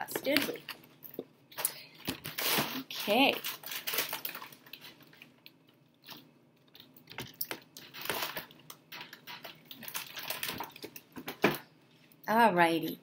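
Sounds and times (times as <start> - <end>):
paper rustling: 2.1 - 5.4, 7.2 - 11.6.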